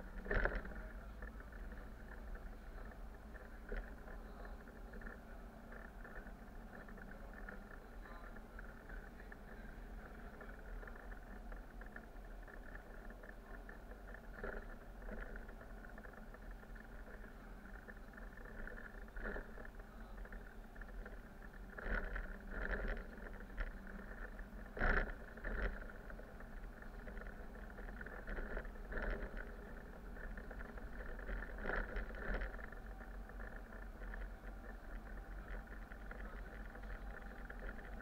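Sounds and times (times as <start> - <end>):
bus engine humming: 0.0 - 38.0.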